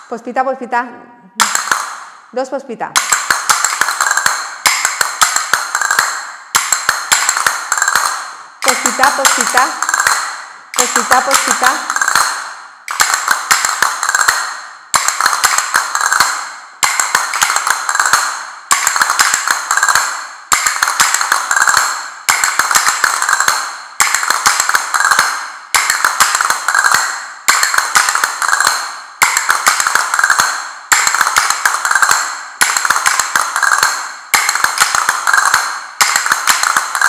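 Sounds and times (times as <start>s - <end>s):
castanets clicking: 1.4s - 2.2s, 3.0s - 37.0s.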